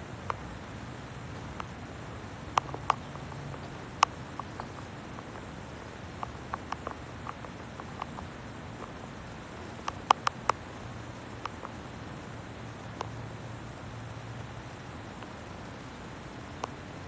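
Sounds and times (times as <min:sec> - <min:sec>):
steady hiss: 0:00.0 - 0:17.0
light sharp taps: 0:02.5 - 0:05.5.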